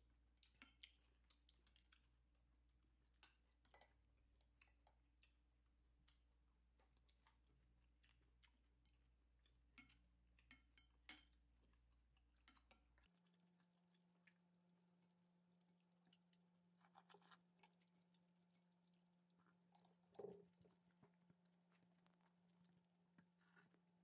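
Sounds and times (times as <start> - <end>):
chopsticks and spoon clinking bowl: 3.2 - 5.0, 8.8 - 11.8, 19.4 - 20.7.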